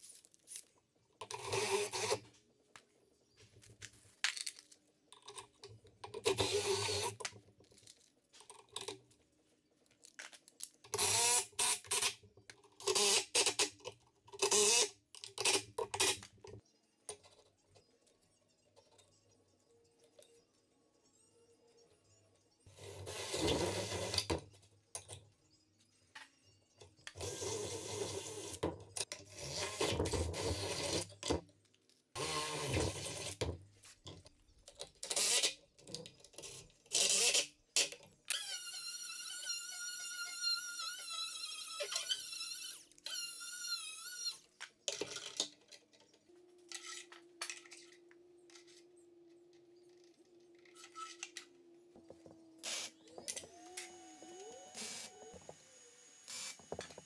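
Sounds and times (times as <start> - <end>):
drill whining: 32.2 - 33.4, 38.3 - 44.5, 52.4 - 57.0.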